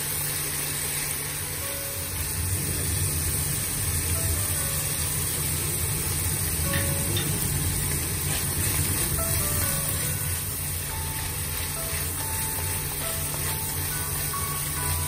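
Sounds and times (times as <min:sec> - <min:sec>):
food sizzling in a wok: 0:00.0 - 0:15.0
soft background music: 0:00.2 - 0:15.0
steady low hum: 0:01.3 - 0:15.0
chopsticks stirring: 0:06.5 - 0:15.0.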